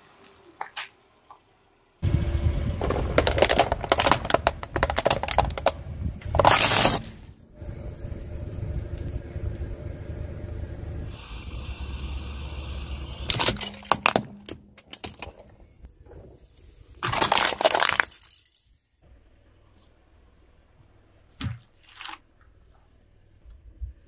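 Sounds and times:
low engine rumble: 0:00.0 - 0:17.0
tyre crushing plastic: 0:02.6 - 0:07.4, 0:13.3 - 0:15.5, 0:17.0 - 0:18.5.

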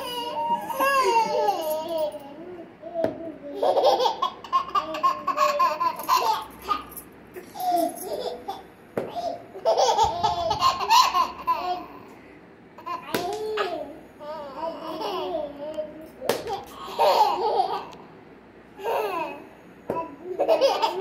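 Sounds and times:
toddler boy laughing: 0:00.0 - 0:02.7, 0:03.3 - 0:12.1, 0:12.8 - 0:18.0, 0:18.8 - 0:21.0
toddler babbling: 0:00.0 - 0:04.0.

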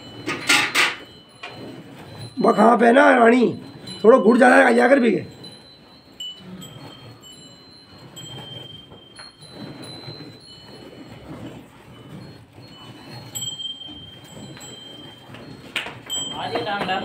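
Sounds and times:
high chime-like tones: 0:00.0 - 0:17.0.

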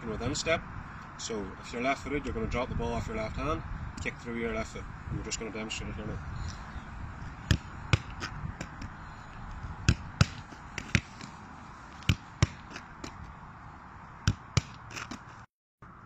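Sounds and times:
football kicked sharp thuds: 0:07.3 - 0:09.0, 0:09.8 - 0:11.4, 0:12.0 - 0:13.2, 0:14.2 - 0:15.3.

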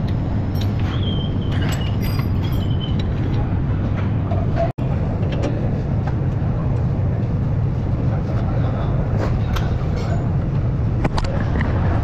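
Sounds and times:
low rumbling workshop noise: 0:00.0 - 0:12.0.

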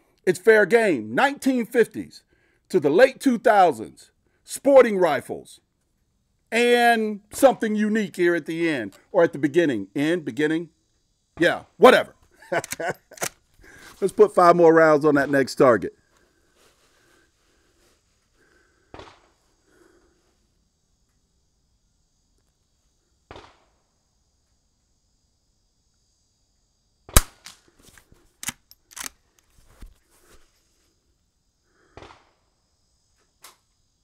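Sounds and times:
rifle action clicks and knocks: 0:12.6 - 0:13.4, 0:28.4 - 0:29.5
suppressed rifle shots: 0:27.1 - 0:27.6.

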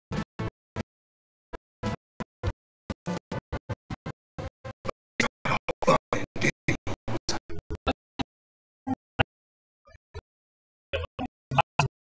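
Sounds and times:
stuttering background music: 0:03.0 - 0:08.0.

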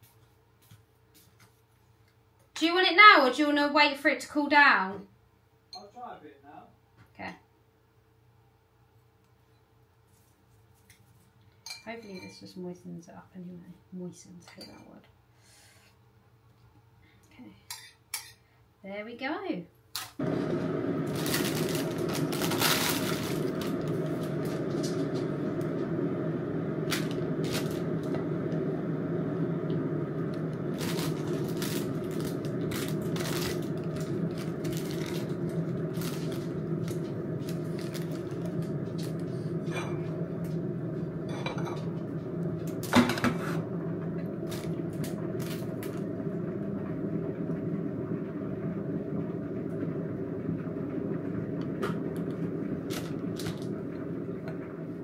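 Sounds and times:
steady low hum: 0:20.2 - 0:55.0.

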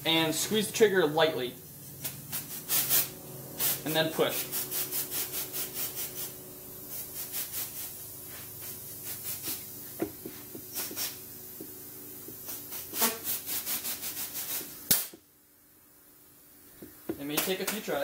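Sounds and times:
steady low hum: 0:00.0 - 0:18.0
rubber grip rubbing strokes: 0:02.0 - 0:11.7.

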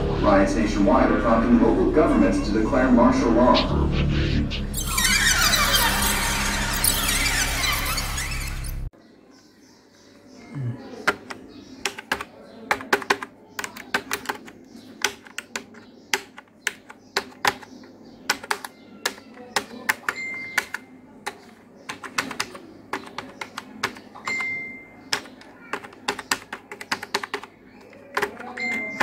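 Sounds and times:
keystroke clicks: 0:11.0 - 0:29.0.

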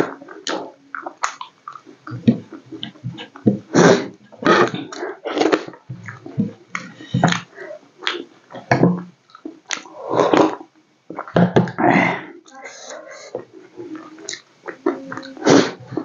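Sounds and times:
wet chewing and lip-smacking: 0:00.0 - 0:03.4, 0:04.2 - 0:11.4
slurping from a bowl: 0:09.7 - 0:10.6.

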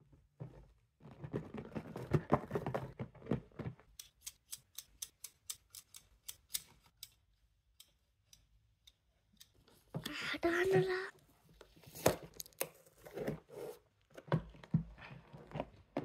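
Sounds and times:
plastic scissors clicking: 0:04.0 - 0:07.2.

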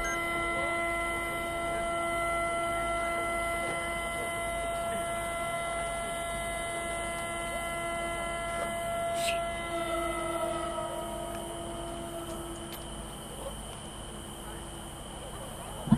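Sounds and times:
steady hum: 0:00.0 - 0:15.9
high hiss: 0:08.0 - 0:15.9.

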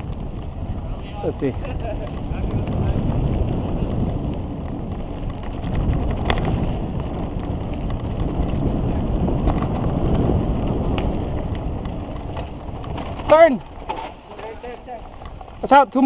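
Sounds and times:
bike rattling: 0:00.0 - 0:16.0
tyres rumbling on loose dirt: 0:00.0 - 0:16.0
wind rush on microphone: 0:00.0 - 0:16.0.

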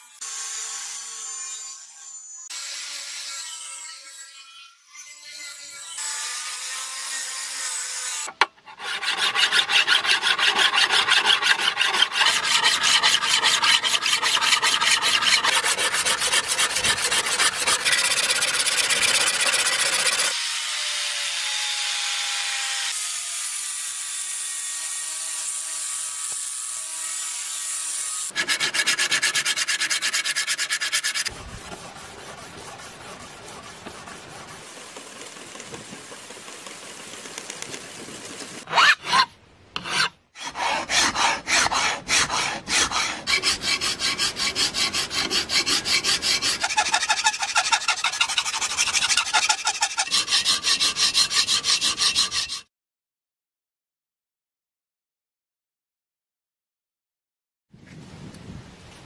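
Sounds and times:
angle grinder grinding steel: 0:08.0 - 0:20.4, 0:25.4 - 0:37.6, 0:38.6 - 0:52.7
hand abrading strokes on blade: 0:28.3 - 0:52.7.

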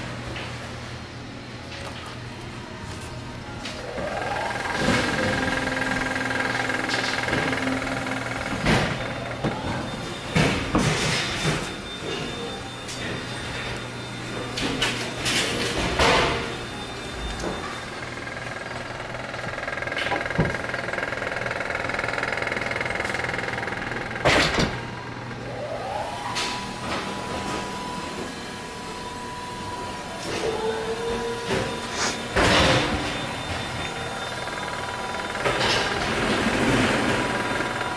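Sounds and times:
low machine hum: 0:00.0 - 0:37.9
steady whine: 0:02.6 - 0:37.9.

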